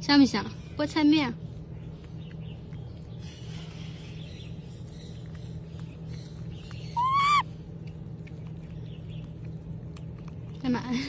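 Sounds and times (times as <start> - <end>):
steady low hum: 0.0 - 11.0
clicks and smacks of eating: 1.4 - 11.0
baby monkey cooing: 6.8 - 7.5.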